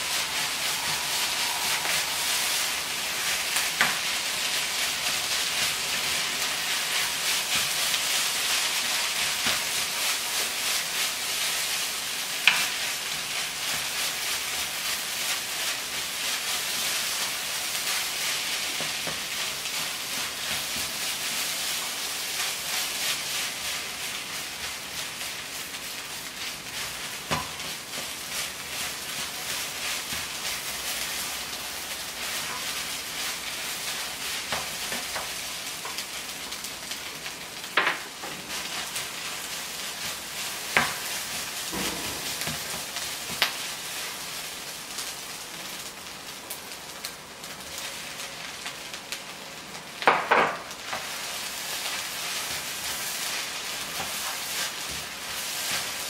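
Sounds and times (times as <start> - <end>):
spatula scraping a wok: 0.0 - 24.7
rice sizzling in a wok: 0.0 - 56.0.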